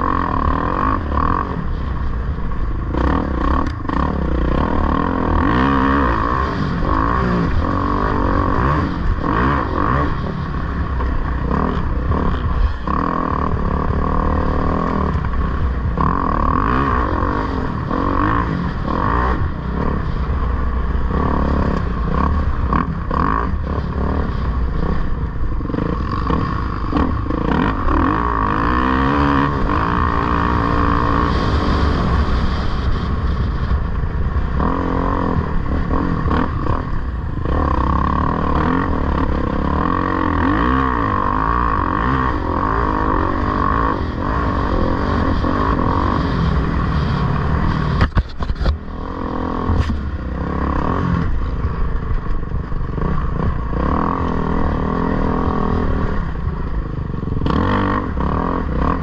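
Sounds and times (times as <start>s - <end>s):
dirt bike engine revving: 0.0s - 59.0s
bike knocks and clatter: 48.0s - 48.8s.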